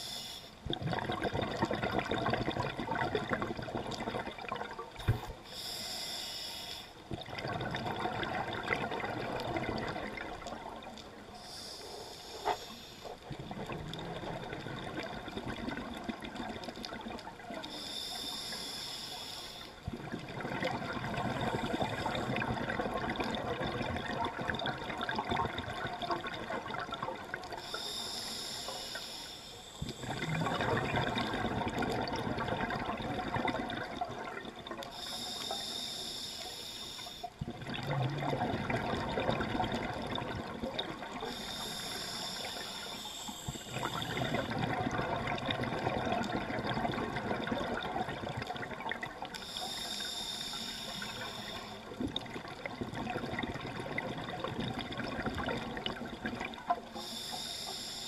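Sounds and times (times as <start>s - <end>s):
hissing regulator inhale: 0.0s - 0.6s, 5.0s - 7.1s, 11.3s - 13.2s, 17.6s - 19.9s, 27.5s - 31.4s, 34.9s - 37.4s, 41.2s - 44.6s, 49.3s - 52.0s, 56.7s - 58.0s
exhaled bubbles rumbling: 0.7s - 5.2s, 7.1s - 11.0s, 13.2s - 17.6s, 19.8s - 27.6s, 29.8s - 35.0s, 37.4s - 41.4s, 43.5s - 49.4s, 51.8s - 56.9s.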